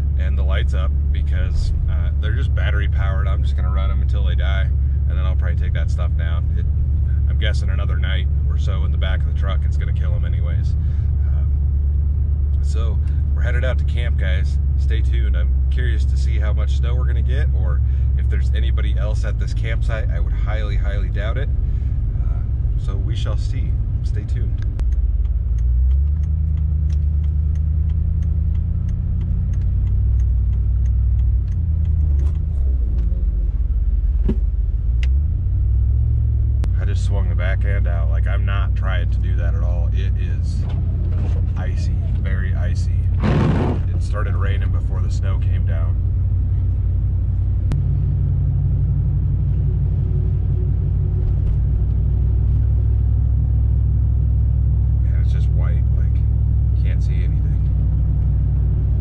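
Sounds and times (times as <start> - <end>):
truck engine and tyres rumbling: 0.0 - 59.0
faint regular ticking: 20.6 - 33.1
thump inside vehicle: 34.2 - 34.6.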